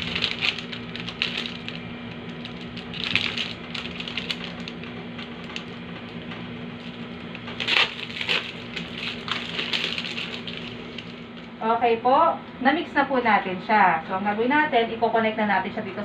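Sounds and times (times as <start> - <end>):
plastic packaging crinkling: 0.0 - 11.5.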